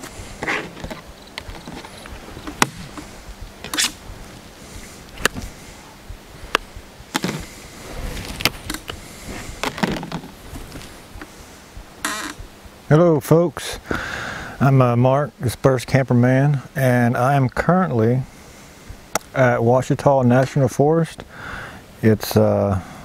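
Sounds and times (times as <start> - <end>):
fly swatter swishing: 1.6 - 4.1.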